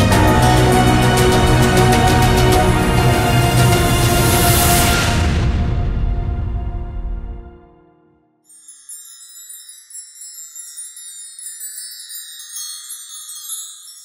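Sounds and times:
soundtrack music: 0.0s - 8.1s
sparkling chime sound effect: 8.4s - 14.0s.

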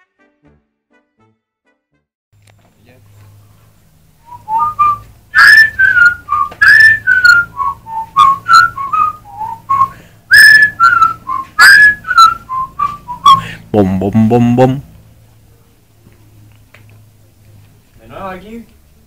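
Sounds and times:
low steady hum: 2.4s - 19.0s
person whistling a tune: 4.2s - 13.6s.

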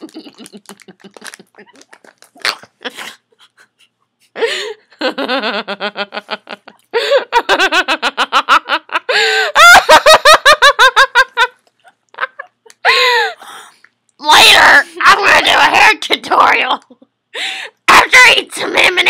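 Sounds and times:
young woman laughing hard: 0.0s - 2.0s, 2.7s - 11.6s, 12.2s - 13.4s.

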